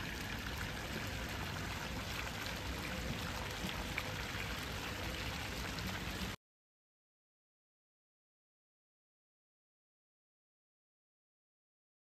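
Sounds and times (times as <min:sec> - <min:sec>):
water splashing from fountain: 0:00.0 - 0:06.4.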